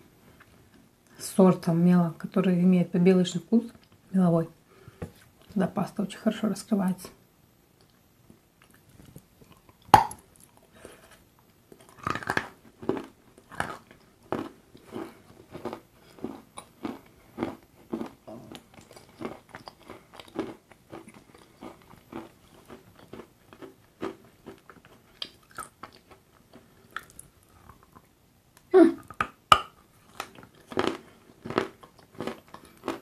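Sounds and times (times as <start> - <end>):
crunchy chewing: 11.7 - 28.0, 30.0 - 33.0.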